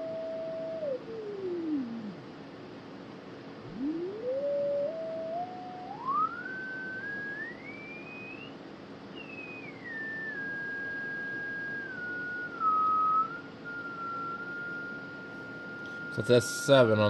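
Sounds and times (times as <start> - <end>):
faint steady hum: 0.0 - 17.0
radio beat tone whistle: 3.6 - 8.6, 9.2 - 17.0.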